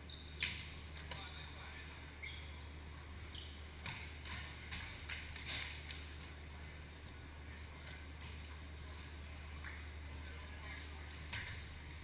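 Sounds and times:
low hum of large hall: 0.0s - 12.0s
volleyball knocks and slaps: 3.8s - 5.8s.

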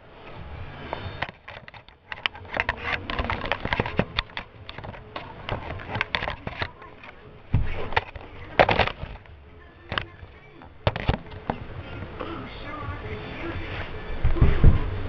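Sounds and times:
handling clicks and scrapes: 0.2s - 12.1s
loud thumps: 7.5s - 9.3s, 10.8s - 11.7s, 14.2s - 15.0s.

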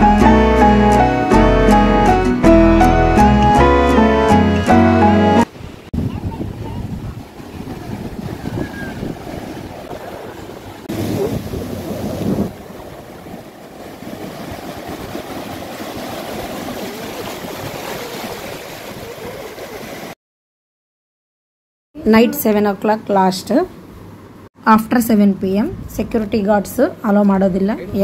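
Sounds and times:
surf breaking on shore: 3.4s - 20.2s
wind buffeting microphone: 5.5s - 19.8s, 25.5s - 28.0s.

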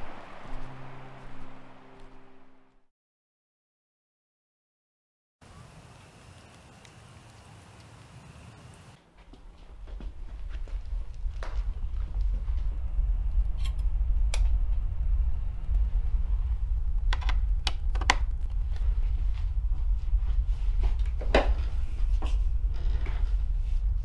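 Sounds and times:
low steady rumble: 9.4s - 24.0s.

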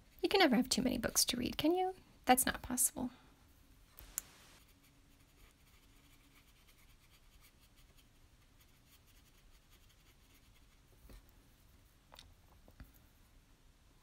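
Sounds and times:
small click: 4.0s - 4.3s
brush strokes on paper: 4.0s - 11.0s.

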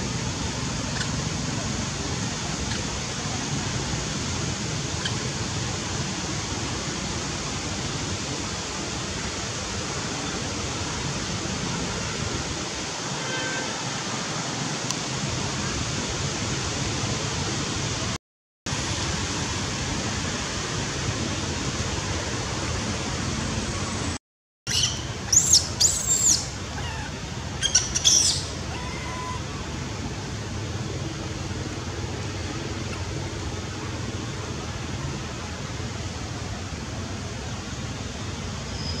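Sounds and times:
steady outdoor hiss: 0.0s - 39.0s
high-pitched squeaky animal calls: 24.7s - 29.4s.

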